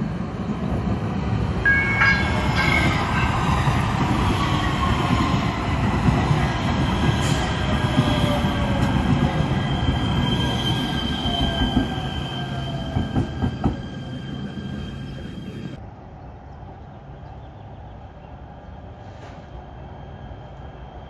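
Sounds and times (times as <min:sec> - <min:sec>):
train wheels rumbling on rail: 0:00.0 - 0:17.4
high squeal: 0:09.4 - 0:15.7.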